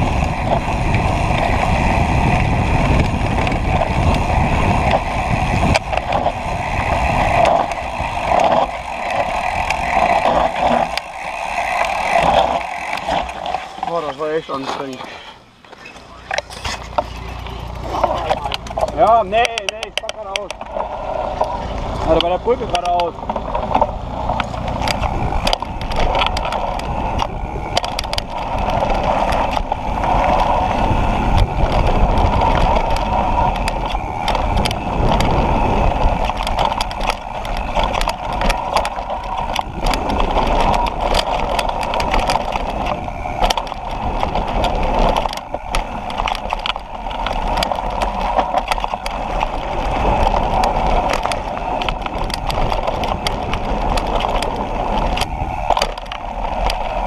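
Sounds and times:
wind rush on microphone: 0:00.0 - 0:14.9, 0:15.8 - 0:57.0
bike rattles and knocks: 0:00.0 - 0:57.0
bike tyre roar: 0:00.0 - 0:57.0.

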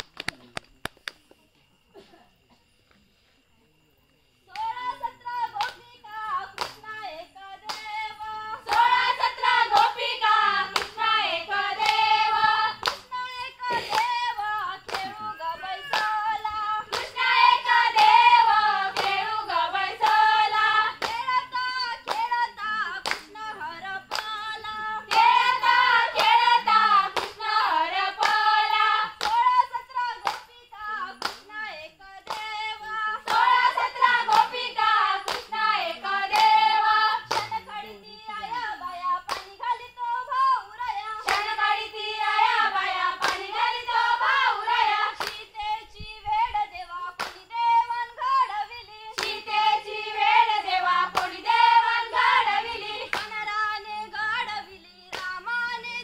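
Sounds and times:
hand-clapping: 0:00.0 - 0:01.4, 0:05.6 - 0:05.9, 0:06.6 - 0:06.9, 0:07.6 - 0:08.0, 0:08.6 - 0:19.3, 0:19.9 - 0:23.4, 0:24.1 - 0:24.4, 0:25.1 - 0:27.5, 0:28.2 - 0:29.5, 0:30.2 - 0:30.5, 0:31.1 - 0:31.5, 0:32.2 - 0:32.6, 0:33.2 - 0:35.7, 0:36.3 - 0:36.7, 0:37.3 - 0:37.7, 0:39.3 - 0:39.6, 0:41.2 - 0:41.6, 0:43.2 - 0:45.4, 0:47.2 - 0:47.4, 0:49.1 - 0:49.6, 0:50.2 - 0:53.6, 0:55.1 - 0:55.7
women singing folk song: 0:04.4 - 0:56.0.

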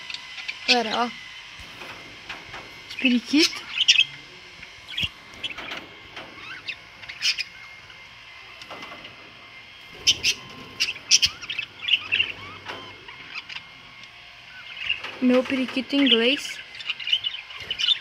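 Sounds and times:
budgerigars chirping: 0:02.8 - 0:04.2, 0:04.8 - 0:07.9, 0:09.9 - 0:18.0.

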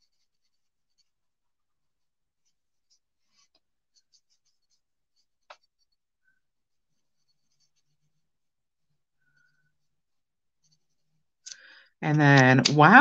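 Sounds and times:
marker scratching on card: 0:00.0 - 0:01.2, 0:02.4 - 0:06.0, 0:06.8 - 0:08.2, 0:10.6 - 0:11.2.

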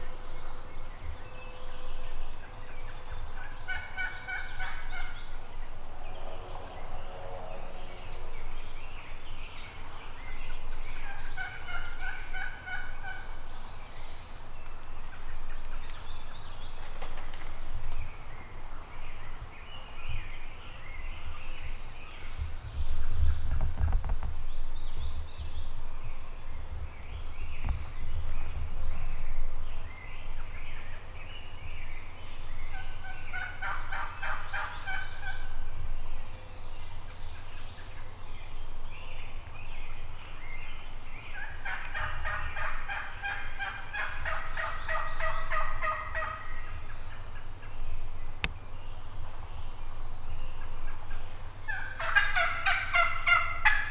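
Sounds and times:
small birds twittering: 0:00.0 - 0:53.9
turkeys gobbling: 0:03.4 - 0:05.2, 0:11.1 - 0:13.3, 0:32.7 - 0:35.5, 0:41.4 - 0:46.7, 0:51.7 - 0:53.9
low rumble: 0:05.0 - 0:11.4.

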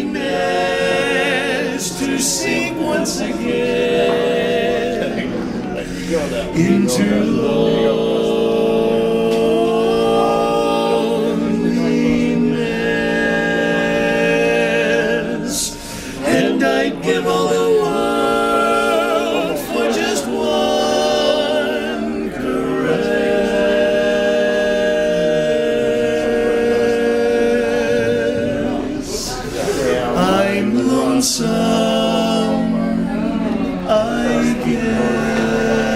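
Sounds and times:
male quartet singing in harmony: 0:00.0 - 0:35.9.

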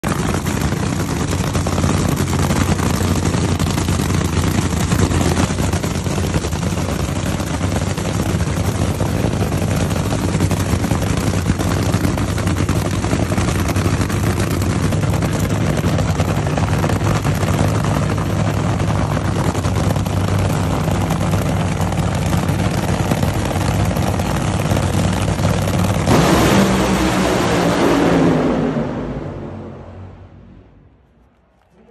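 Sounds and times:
race car engine idling: 0:00.0 - 0:27.3.

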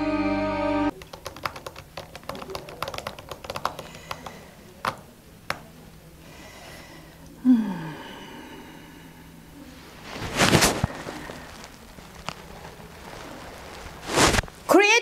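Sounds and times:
laptop keyboard typing: 0:00.9 - 0:05.7
person groaning: 0:07.4 - 0:08.9.

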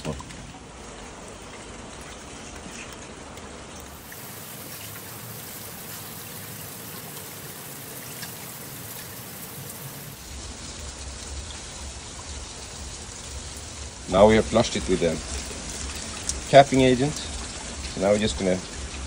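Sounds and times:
liquid sloshing in fuel tank: 0:00.0 - 0:10.1.

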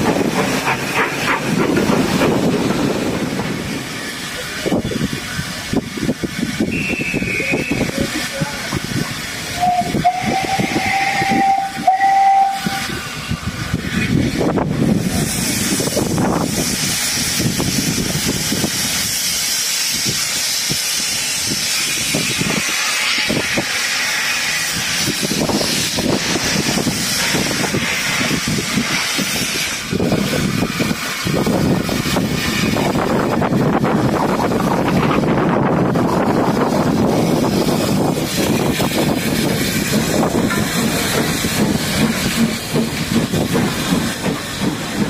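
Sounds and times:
loud hiss of steam: 0:00.0 - 0:45.0
low locomotive chuffs: 0:00.0 - 0:45.0
steam locomotive whistle: 0:06.6 - 0:08.1, 0:09.5 - 0:13.1.

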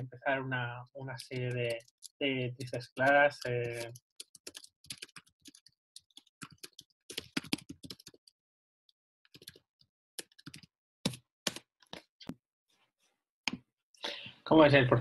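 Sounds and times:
typing on computer keyboard: 0:02.9 - 0:08.3, 0:09.3 - 0:09.6, 0:10.2 - 0:11.6.

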